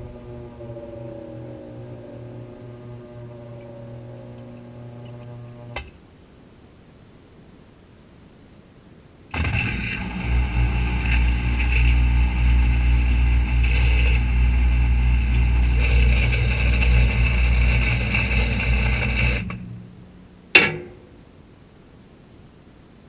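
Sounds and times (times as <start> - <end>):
washing machine motor humming: 0.0 - 5.9, 9.3 - 20.6
sharp click: 20.6 - 21.1.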